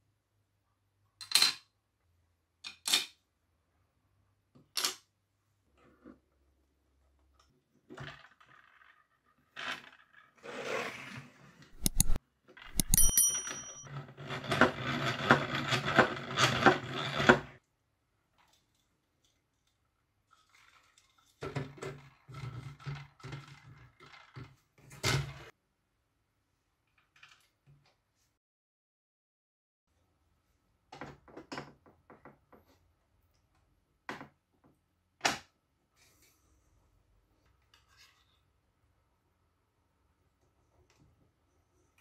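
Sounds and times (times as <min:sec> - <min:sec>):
sharp clicks with metallic ring: 0:11.8 - 0:13.8.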